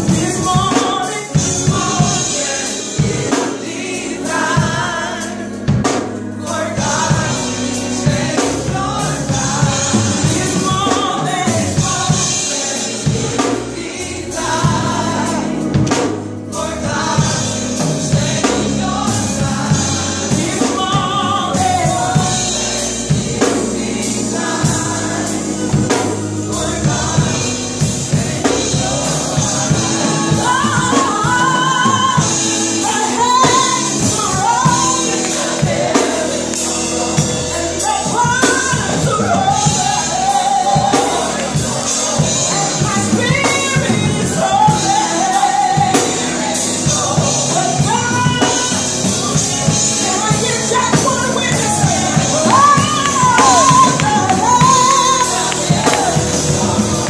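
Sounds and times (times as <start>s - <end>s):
backing singers: 0.0s - 57.0s
drums: 0.0s - 57.0s
bass line: 13.0s - 57.0s
woman singing lead: 16.7s - 57.0s.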